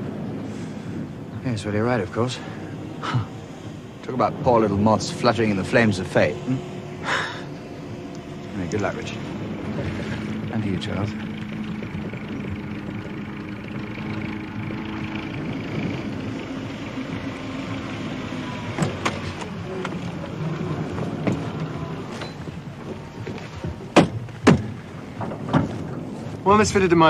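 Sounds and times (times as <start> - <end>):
vehicle engine running: 0.0 - 27.0
sharp knocks: 23.7 - 26.0.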